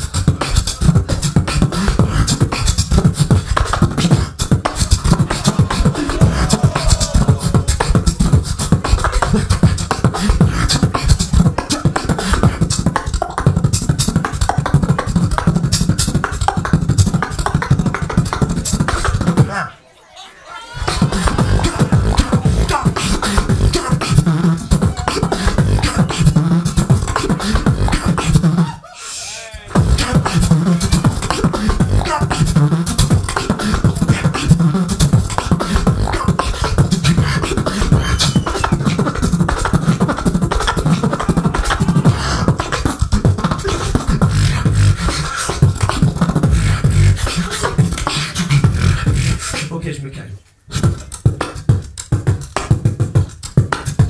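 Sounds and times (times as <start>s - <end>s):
deep bass: 0.0s - 11.6s, 20.8s - 28.6s, 29.8s - 36.2s, 40.9s - 42.6s, 43.2s - 45.1s, 45.7s - 47.2s, 48.6s - 49.5s
beatboxing into microphone: 0.0s - 19.8s, 20.7s - 54.0s
wavering pitched sound: 20.8s - 27.1s.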